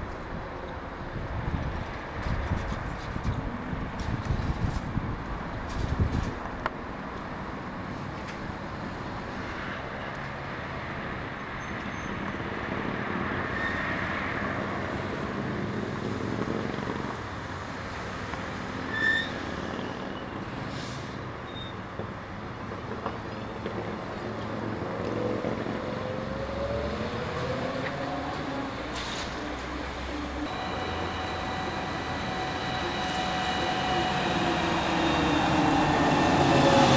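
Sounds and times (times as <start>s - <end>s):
street traffic: 0.0s - 36.9s
short high squeak: 18.9s - 19.4s, 21.5s - 21.8s, 30.5s - 36.3s
trolleybus electric whine: 23.3s - 36.9s.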